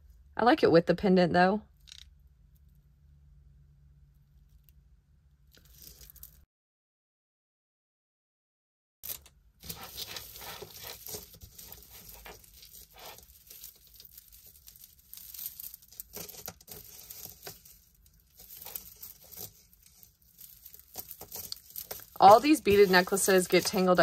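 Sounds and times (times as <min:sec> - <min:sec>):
rustling: 0:05.5 - 0:06.4, 0:09.1 - 0:24.0
beads clicking and rattling: 0:05.6 - 0:06.4, 0:09.1 - 0:24.0.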